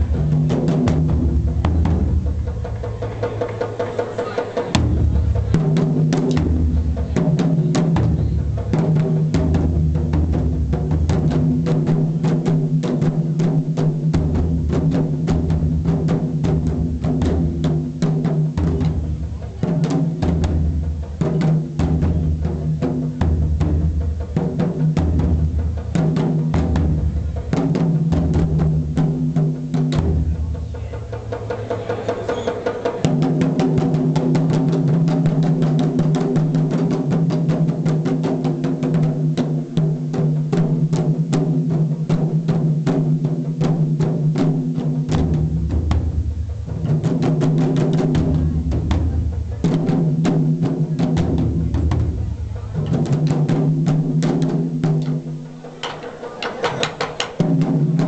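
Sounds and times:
deep low drum tones: 0:00.0 - 0:58.0
drums in fast driving rhythm: 0:00.0 - 0:58.0.

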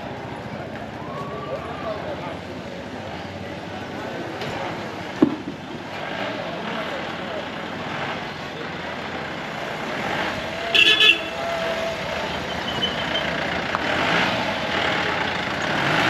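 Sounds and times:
street traffic: 0:00.0 - 0:16.0
vehicle horn toots: 0:10.7 - 0:11.5.

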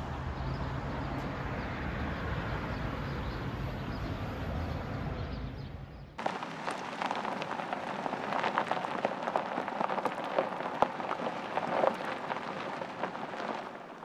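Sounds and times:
tyres crunching on gravel: 0:06.2 - 0:14.0.

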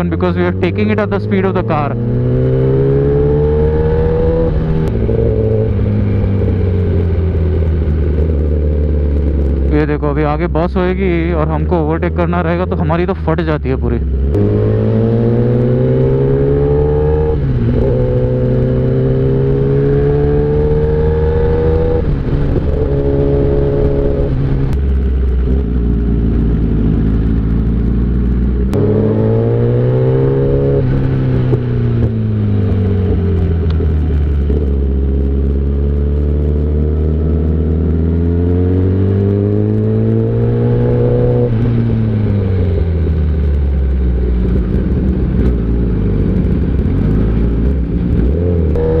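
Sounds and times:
motorcycle engine revving: 0:00.0 - 0:49.0.

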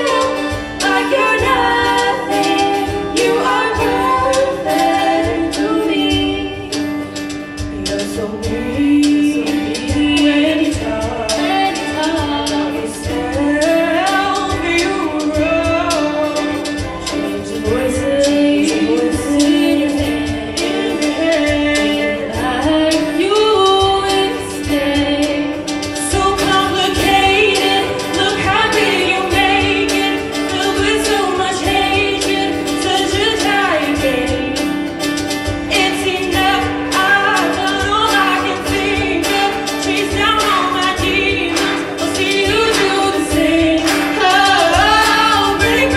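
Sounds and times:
girls choir singing pop ballad: 0:00.0 - 0:45.9
live band with steady beat: 0:00.0 - 0:45.9.

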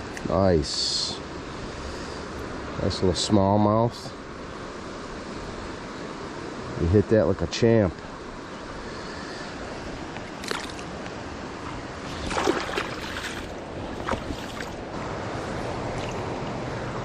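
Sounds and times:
flowing river water: 0:00.0 - 0:17.0
water splashes in shallows: 0:10.2 - 0:14.9, 0:15.8 - 0:16.6.

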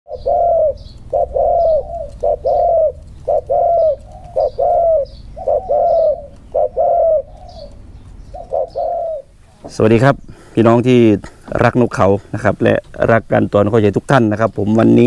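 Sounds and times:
dove cooing: 0:00.1 - 0:10.4.

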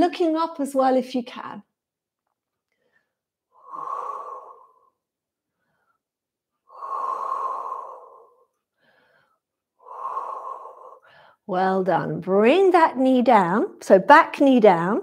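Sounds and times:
woman breathing: 0:02.6 - 0:11.5.

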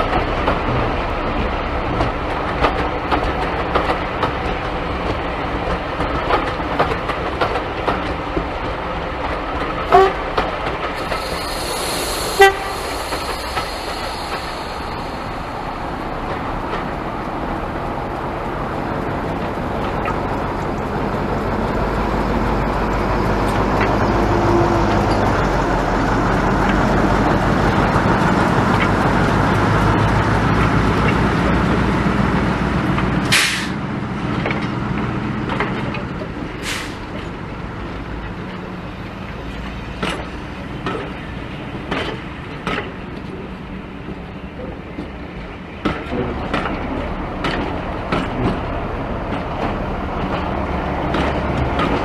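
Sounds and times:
diesel locomotive engine running: 0:00.0 - 0:52.0
air hiss: 0:11.0 - 0:16.3, 0:33.3 - 0:33.8.

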